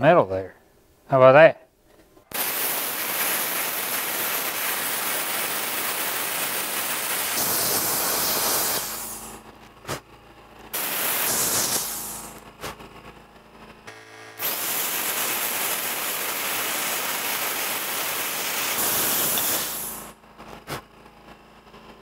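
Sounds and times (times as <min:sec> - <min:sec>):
plasma cutter hissing: 0:02.3 - 0:09.4, 0:10.8 - 0:12.4, 0:14.4 - 0:20.2.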